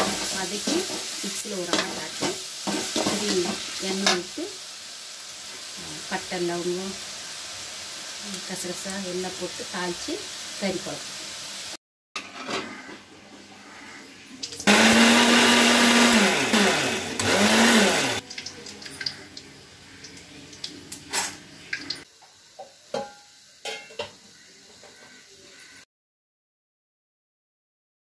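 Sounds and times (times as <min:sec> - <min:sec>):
mixer grinder motor grinding: 0:14.6 - 0:18.2
steel utensils knocking and clinking: 0:23.0 - 0:24.1.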